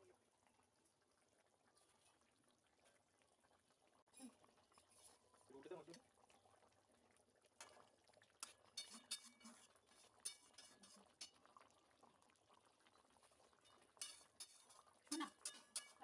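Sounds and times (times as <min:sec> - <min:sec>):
metal spatula scraping a pan: 0:08.4 - 0:11.4, 0:13.6 - 0:16.0.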